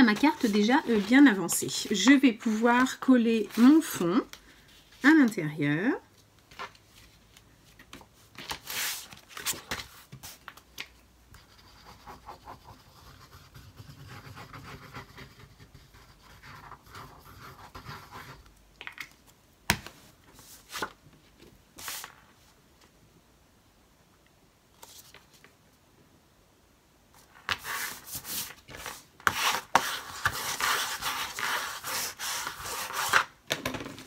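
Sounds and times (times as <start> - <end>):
paper scraping and rustling: 0.0 - 2.6.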